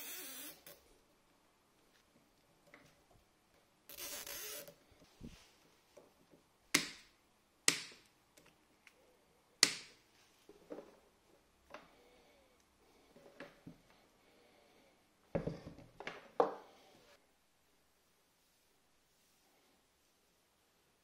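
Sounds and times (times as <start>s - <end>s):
cable tie zipping: 3.9s - 4.8s.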